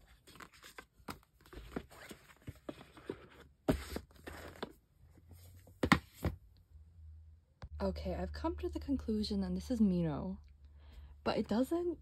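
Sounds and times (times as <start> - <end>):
paper rustling and scraping: 0.0 - 4.7.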